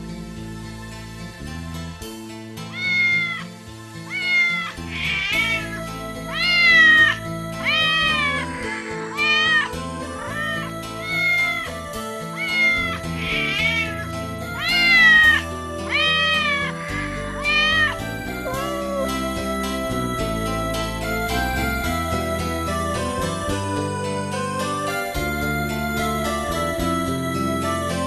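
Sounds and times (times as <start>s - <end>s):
background music: 0.0s - 28.0s
cat meowing: 2.7s - 21.9s.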